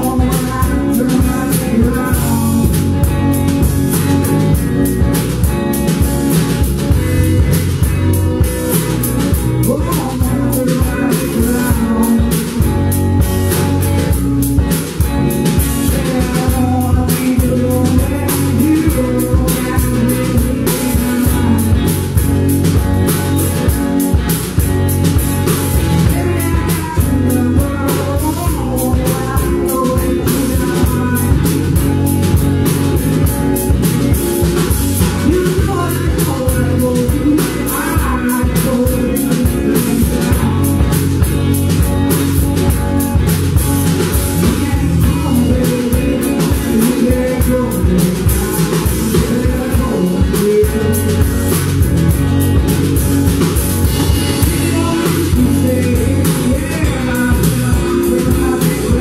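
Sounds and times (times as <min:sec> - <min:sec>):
woman singing: 0:00.0 - 0:03.1, 0:09.6 - 0:12.7, 0:15.8 - 0:22.0, 0:35.2 - 0:41.1, 0:44.4 - 0:51.3, 0:54.3 - 0:59.0
drum kit beat: 0:00.0 - 0:59.0
electric guitars: 0:00.0 - 0:59.0.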